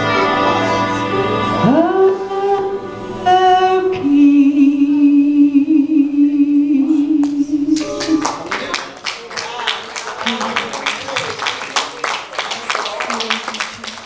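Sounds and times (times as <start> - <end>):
woman singing: 1.2 - 8.4.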